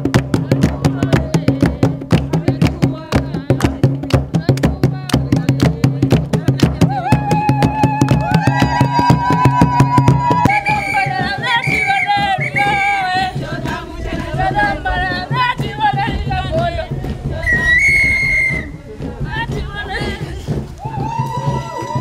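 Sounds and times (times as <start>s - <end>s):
group singing dance song: 0.1s - 22.0s.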